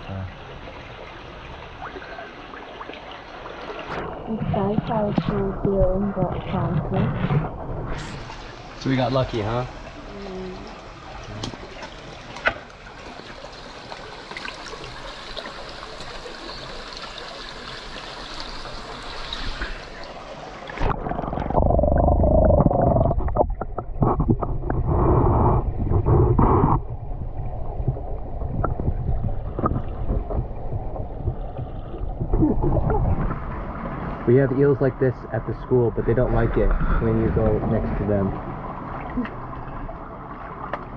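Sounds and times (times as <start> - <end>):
underwater rumbling gurgle: 0.0 - 40.9
creek water trickling over rocks: 8.2 - 24.9.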